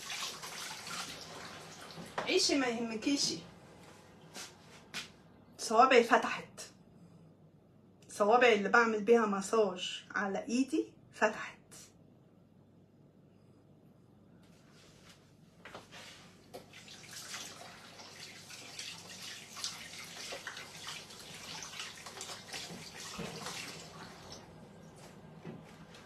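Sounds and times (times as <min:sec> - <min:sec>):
tap water running into sink: 0:00.0 - 0:02.3, 0:16.5 - 0:25.6
hands rinsing with splashing: 0:16.6 - 0:24.5.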